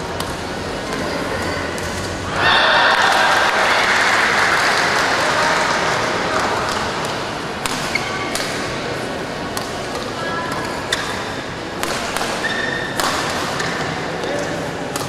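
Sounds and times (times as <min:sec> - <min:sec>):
crowd noise: 0:00.0 - 0:15.0
rackets striking shuttlecock: 0:06.7 - 0:08.7, 0:09.5 - 0:15.0
shoes squeaking on court: 0:12.4 - 0:13.7.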